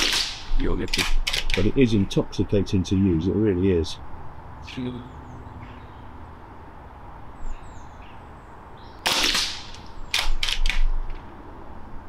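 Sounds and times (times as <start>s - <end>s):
air rifle shot: 0.0s - 1.6s, 9.0s - 10.9s
bolt action clacks: 0.0s - 1.7s, 9.2s - 11.2s.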